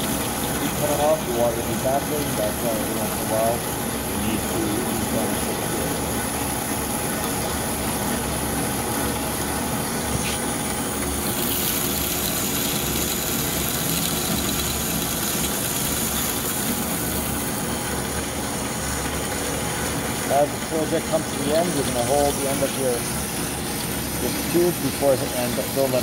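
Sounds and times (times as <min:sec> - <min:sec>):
coolant hissing: 0:00.0 - 0:26.0.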